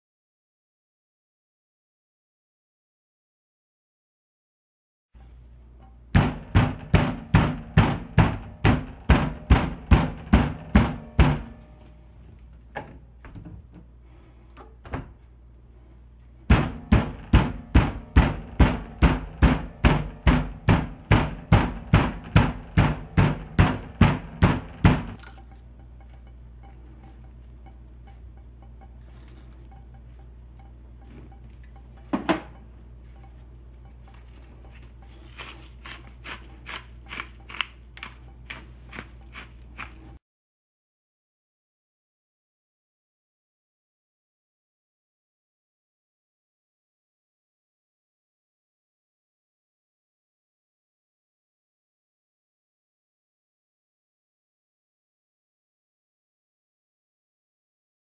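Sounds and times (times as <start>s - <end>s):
meat tenderizer pounding meat: 6.2s - 11.6s, 16.5s - 25.2s.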